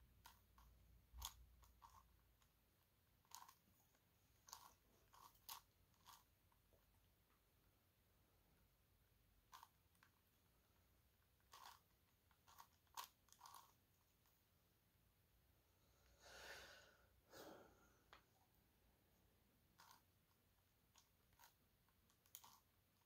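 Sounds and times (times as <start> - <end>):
plastic puzzle clicks and scrapes: 0.2 - 6.9, 9.4 - 10.3, 11.2 - 14.3, 19.7 - 23.0.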